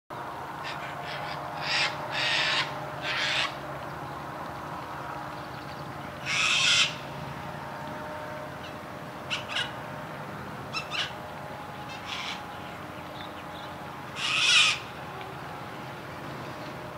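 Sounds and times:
faint steady hum: 0.1s - 16.9s
harsh rasping bird calls: 0.6s - 3.6s, 6.0s - 7.1s, 8.6s - 9.8s, 10.7s - 11.2s, 11.8s - 14.9s.

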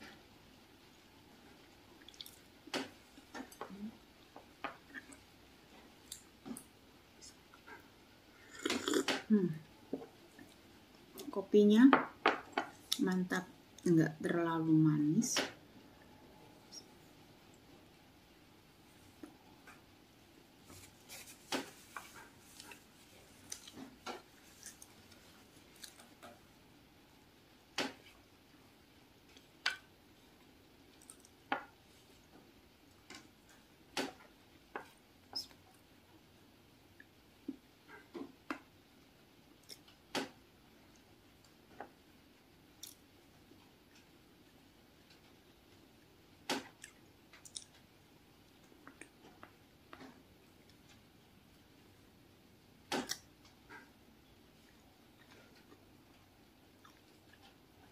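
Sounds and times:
quiet chewing: 2.0s - 2.5s, 3.1s - 11.4s, 21.9s - 26.4s, 30.9s - 31.4s, 39.0s - 40.0s, 46.6s - 51.1s, 54.6s - 57.9s.

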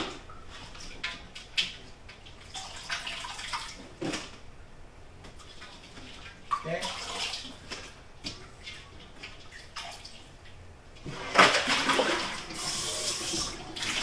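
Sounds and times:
water splashing in sink: 0.0s - 4.3s, 5.4s - 10.5s, 11.1s - 14.0s
water gushing: 6.5s - 7.6s, 11.1s - 14.0s.

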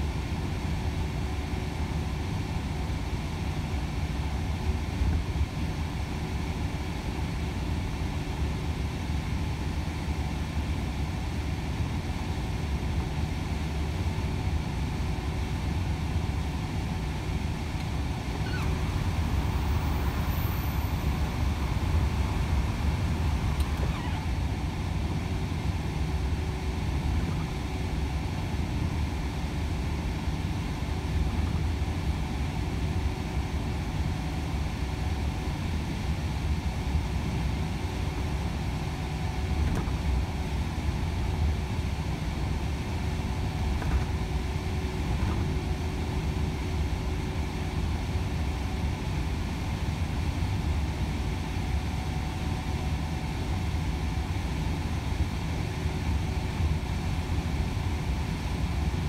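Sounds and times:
diesel truck engine drone: 5.8s - 59.0s
road noise: 17.8s - 25.8s.

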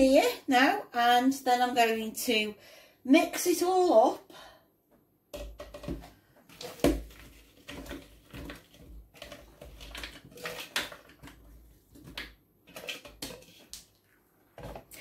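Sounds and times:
fruit clattering into plastic bowl: 5.3s - 13.8s.

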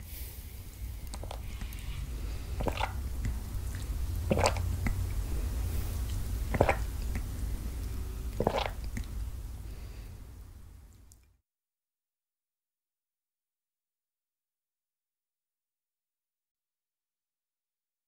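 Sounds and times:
low steady hum: 0.0s - 11.3s.

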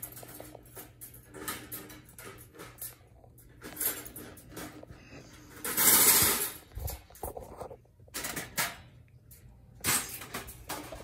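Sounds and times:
metal clicks and rattles: 0.0s - 11.0s
wire mesh scraping rustle: 5.4s - 7.2s.

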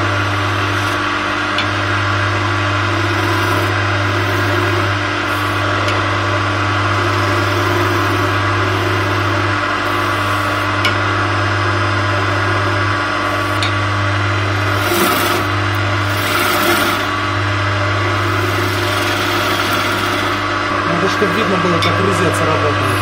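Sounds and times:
turning tool scraping wood: 0.0s - 1.7s, 2.7s - 6.2s, 6.8s - 10.8s, 13.2s - 13.7s, 14.6s - 17.2s, 18.0s - 23.0s
wood lathe humming: 0.0s - 23.0s.

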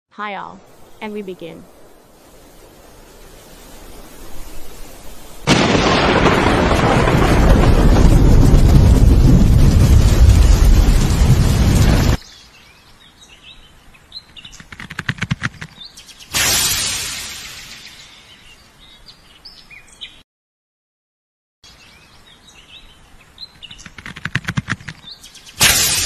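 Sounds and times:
rumbling explosion blast: 5.5s - 12.2s
crackling clicks: 14.5s - 15.8s, 23.7s - 26.0s.

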